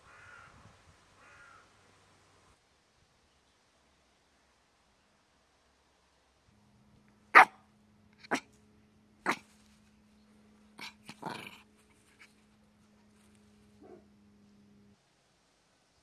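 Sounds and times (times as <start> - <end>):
small dog barking: 7.3 - 7.6, 8.2 - 8.5, 9.2 - 9.5, 10.8 - 11.6, 13.8 - 14.1.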